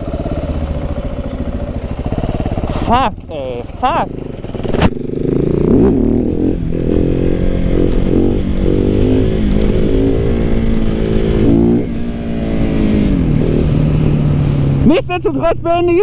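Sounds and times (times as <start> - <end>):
motorcycle engine revving: 0.0 - 15.8.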